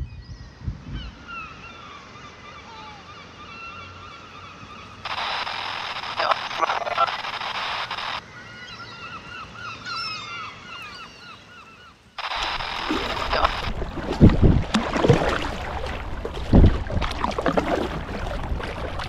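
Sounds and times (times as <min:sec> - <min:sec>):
bird calling rapidly: 0:02.5 - 0:13.7
water splashing around kayak: 0:12.2 - 0:19.0.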